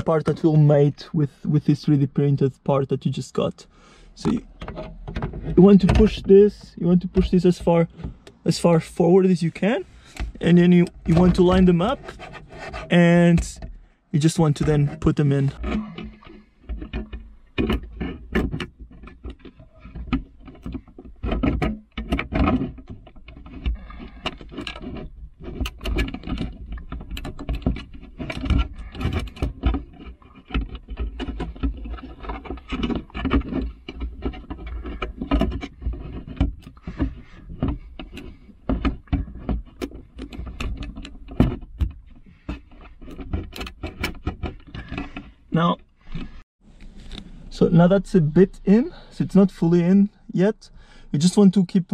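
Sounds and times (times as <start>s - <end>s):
plastic clicks knocks and rattles: 15.6s - 45.3s.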